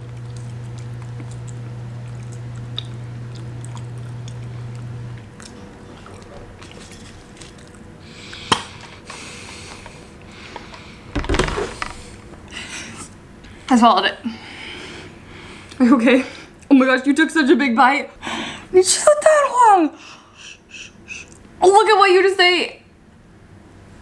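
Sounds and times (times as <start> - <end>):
people chewing: 0.0 - 10.9
steady low hum: 0.0 - 21.7
wet mouth clicks: 0.2 - 4.4.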